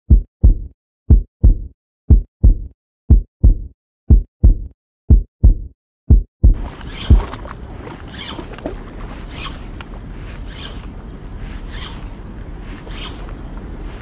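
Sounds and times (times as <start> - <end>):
heartbeat thumps: 0.1 - 7.4.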